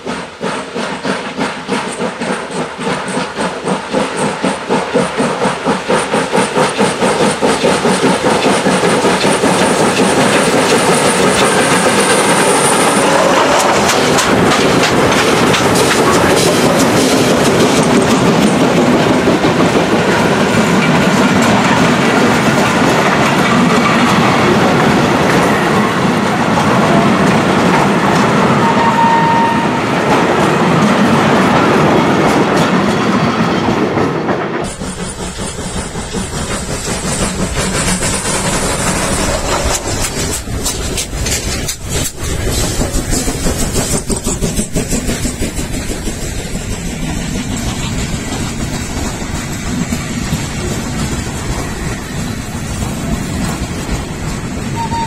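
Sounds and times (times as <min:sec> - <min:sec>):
steam locomotive exhaust beats: 0:00.0 - 0:55.0
wheels clacking over rail joints: 0:00.0 - 0:55.0.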